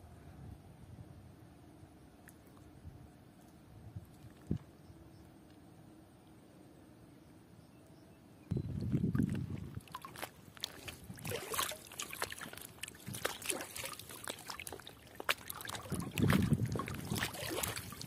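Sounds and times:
water sloshing and dripping: 8.8 - 18.0
small splashes and clicks: 9.1 - 18.0.

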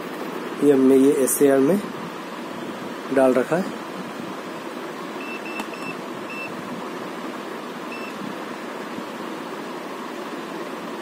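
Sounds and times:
air conditioner fan whooshing: 0.0 - 11.0
short high beeps: 5.2 - 6.5, 7.9 - 8.2.

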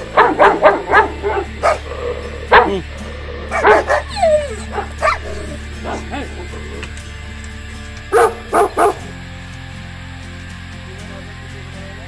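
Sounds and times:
dog whining: 0.0 - 6.9
dogs barking: 0.0 - 7.2, 8.0 - 9.2.

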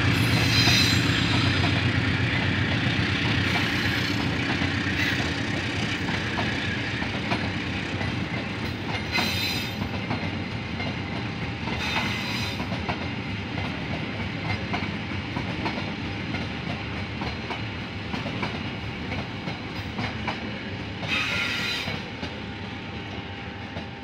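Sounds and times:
train wheel screech: 0.0 - 8.0, 8.6 - 10.2, 11.6 - 12.8, 21.0 - 22.4
train rumble: 0.0 - 24.0
train wheels clicking over rail joints: 0.0 - 24.0.

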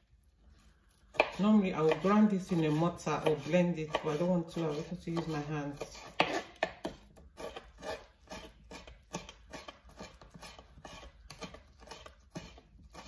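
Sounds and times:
knife tapping cutting board: 1.2 - 4.2.

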